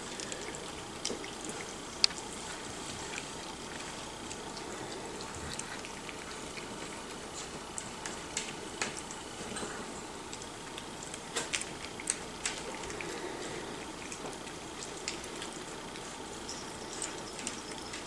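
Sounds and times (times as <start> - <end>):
puppy lapping and chewing: 0.0 - 18.0.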